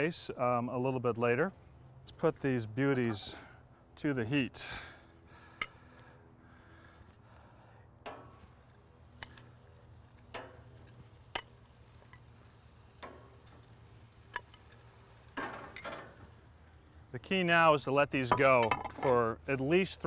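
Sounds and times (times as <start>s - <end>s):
tongs clicking on grill grate: 8.0s - 16.2s.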